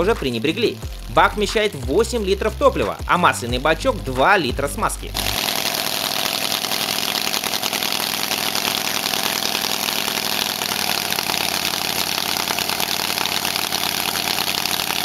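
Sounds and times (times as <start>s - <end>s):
radial engine running: 5.1s - 15.0s.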